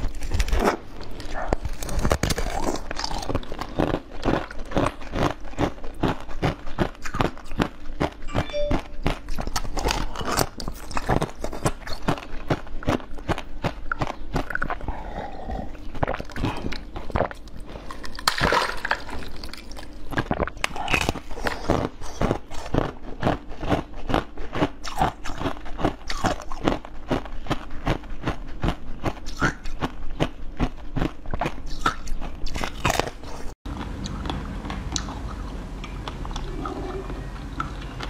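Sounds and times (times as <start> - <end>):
crunching frozen jelly: 0.0 - 8.3, 9.0 - 38.0
soft chewing: 0.0 - 18.2.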